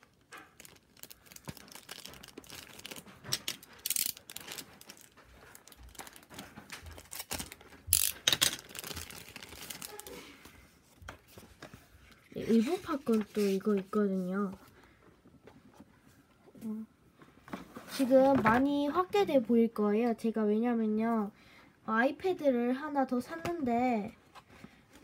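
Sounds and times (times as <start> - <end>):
plastic toy phone being handled: 0.0 - 14.6.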